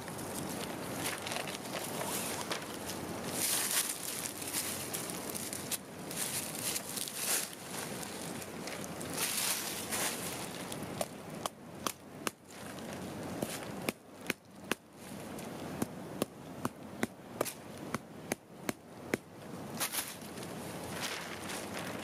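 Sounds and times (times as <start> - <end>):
dry leaves rustling: 0.0 - 11.3, 12.4 - 13.8, 19.8 - 22.0.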